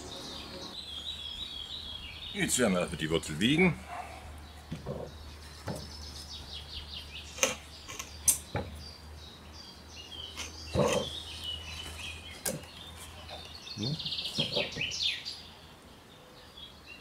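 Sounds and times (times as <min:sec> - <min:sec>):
small birds chirping: 0:00.0 - 0:17.0
wooden knocks and bumps: 0:04.7 - 0:06.0, 0:08.5 - 0:08.8.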